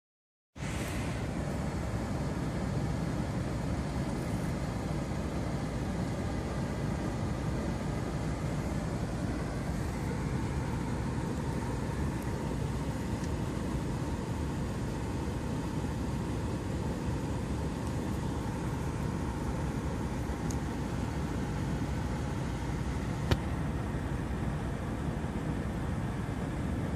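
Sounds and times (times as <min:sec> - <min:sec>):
engine running: 0:00.6 - 0:26.9.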